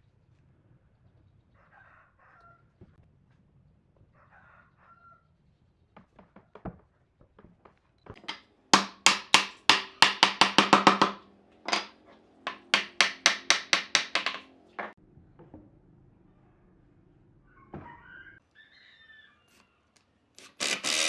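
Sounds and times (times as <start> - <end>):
mallet knocking on wooden chair: 8.2 - 11.9, 12.5 - 15.0.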